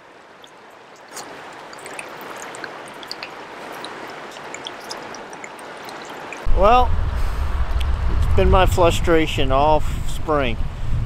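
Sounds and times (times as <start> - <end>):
river water trickling: 0.0 - 6.5
small splashes: 0.0 - 6.5.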